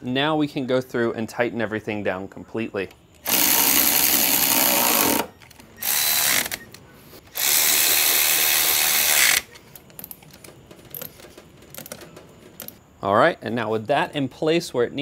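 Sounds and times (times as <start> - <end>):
electric ratchet running: 3.2 - 6.6, 7.3 - 9.5
tool handling clicks: 9.3 - 12.8.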